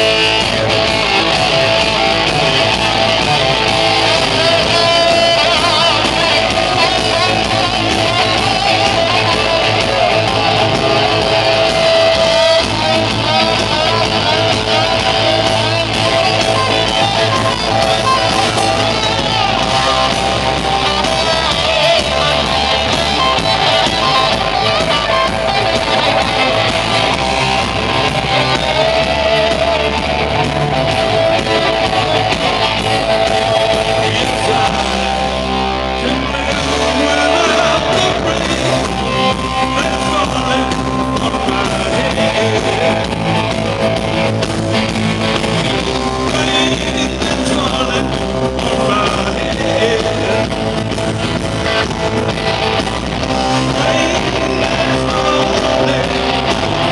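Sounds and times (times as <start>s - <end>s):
person singing: 0.0s - 43.9s, 45.3s - 51.1s, 53.1s - 56.9s
rock band playing live: 0.0s - 56.9s.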